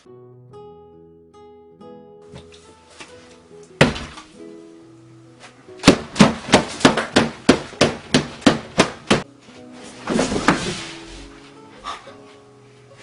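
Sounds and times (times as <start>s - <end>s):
plucked-string music: 0.0s - 7.8s, 8.6s - 13.0s
hands banging on table: 3.8s - 4.3s, 5.8s - 9.3s.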